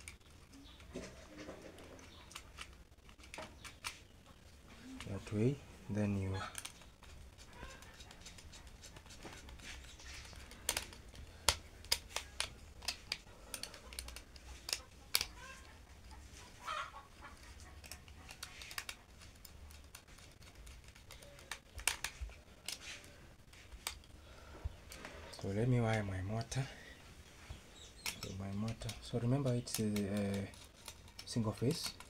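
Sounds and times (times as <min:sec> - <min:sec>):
screwdriver clicking on terminals: 0:09.8 - 0:15.7, 0:27.9 - 0:32.0.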